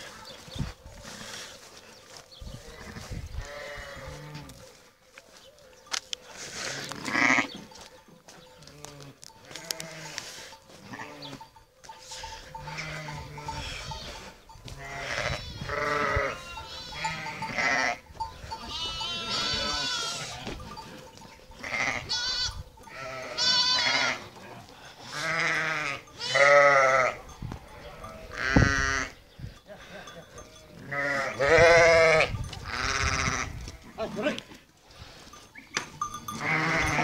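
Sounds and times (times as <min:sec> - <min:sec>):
sheep bleating: 0:02.7 - 0:04.5, 0:06.8 - 0:07.5, 0:08.6 - 0:10.2, 0:10.8 - 0:11.5, 0:12.6 - 0:20.7, 0:21.6 - 0:27.2, 0:30.4 - 0:34.1, 0:36.3 - 0:37.0
sheep bell clinking: 0:05.8 - 0:34.4, 0:35.0 - 0:37.0.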